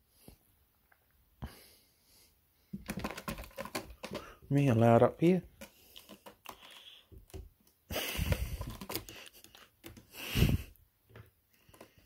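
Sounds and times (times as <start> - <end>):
claws scratching rope post: 5.5 - 7.0.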